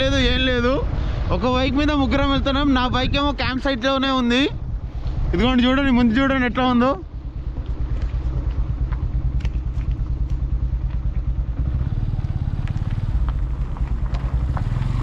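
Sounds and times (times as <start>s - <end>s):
motorcycle engine running: 4.2s - 15.0s.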